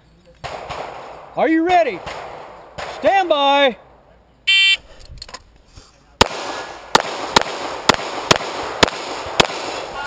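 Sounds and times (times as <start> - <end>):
pistol shots echoing: 0.4 - 4.0, 6.2 - 10.0.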